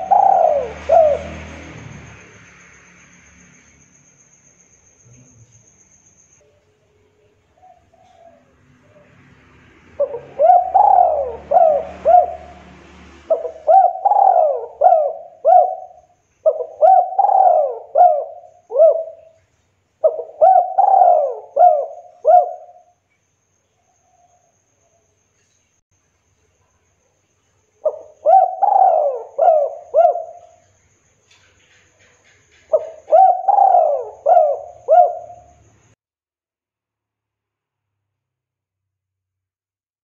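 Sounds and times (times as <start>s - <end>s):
dove cooing: 0.0s - 1.7s, 7.6s - 9.2s, 10.0s - 19.4s, 20.0s - 22.9s, 27.8s - 30.6s, 32.7s - 35.6s.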